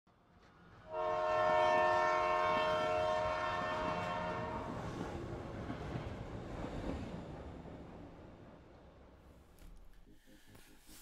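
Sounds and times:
passing train noise: 0.1 - 10.7
train horn chord: 0.8 - 4.9.

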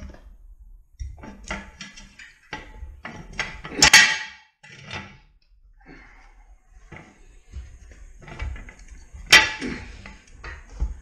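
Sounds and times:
jack stand scraping on floor: 1.1 - 5.2, 6.7 - 11.0.

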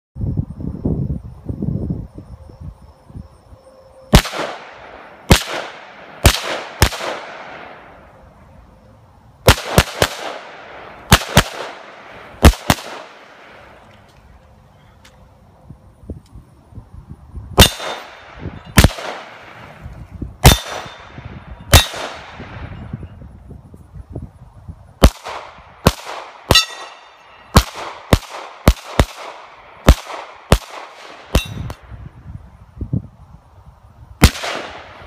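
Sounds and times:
handgun shots: 20.4 - 21.0, 21.7 - 22.3
short metallic ring: 26.5 - 27.5, 31.3 - 31.8.

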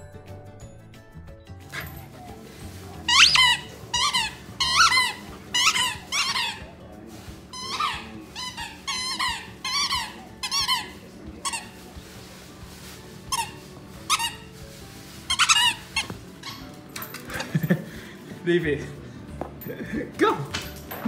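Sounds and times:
dog toy squeaking: 2.9 - 6.8, 7.5 - 11.9, 13.2 - 14.6, 15.2 - 17.2.

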